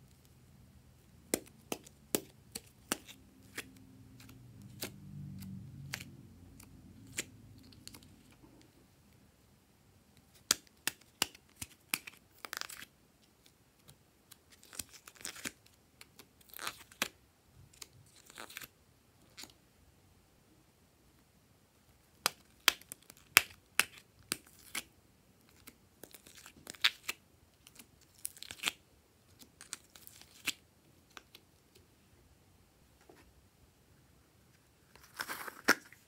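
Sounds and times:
scratchy tearing sounds: 35.0 - 36.0.

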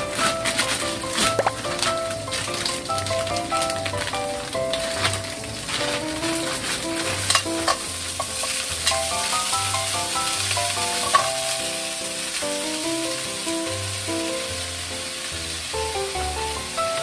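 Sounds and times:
vegetables sizzling in oil: 0.0 - 17.0
chopsticks clicking against pan: 6.6 - 9.1.

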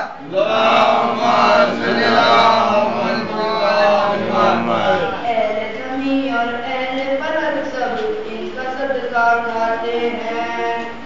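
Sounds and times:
boy chanting: 0.2 - 7.8.

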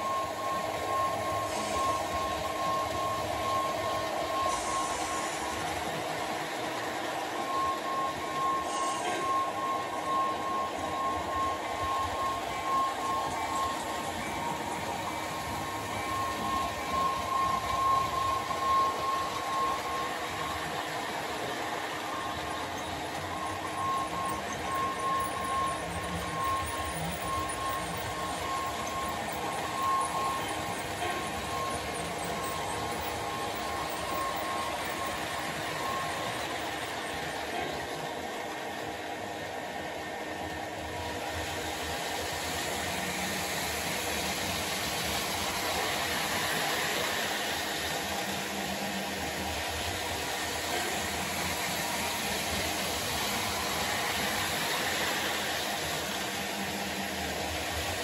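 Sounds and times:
thin pulsing whine: 0.0 - 58.0.

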